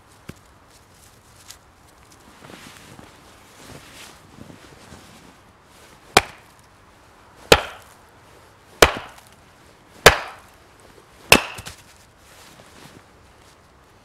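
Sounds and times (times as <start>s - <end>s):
axe chopping firewood: 6.2s - 6.5s, 7.5s - 7.9s, 8.8s - 9.3s, 10.0s - 10.5s, 11.3s - 11.9s.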